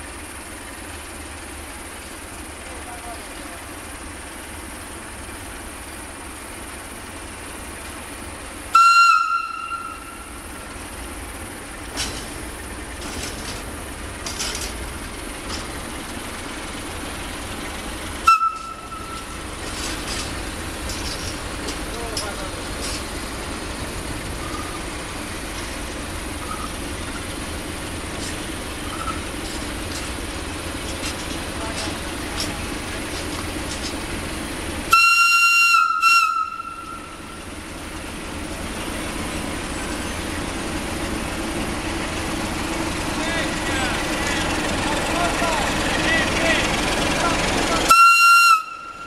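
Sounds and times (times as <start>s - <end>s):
freight train rumble: 0.0s - 49.0s
locomotive diesel engine running: 0.0s - 49.0s
locomotive whistle blast: 8.7s - 10.5s, 18.2s - 19.4s, 34.9s - 37.3s, 47.8s - 49.0s.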